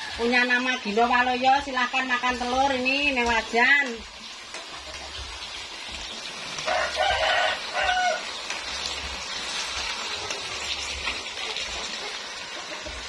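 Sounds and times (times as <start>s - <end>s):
rooster crowing: 0.0s - 0.4s, 6.6s - 8.5s
sauce sizzling in a wok: 0.0s - 13.0s.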